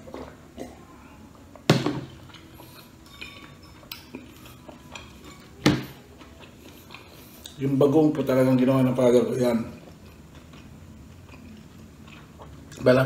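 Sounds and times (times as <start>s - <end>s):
cup set down on table: 1.7s - 2.1s
tableware knocking on tiled table: 1.7s - 2.1s, 5.6s - 6.0s.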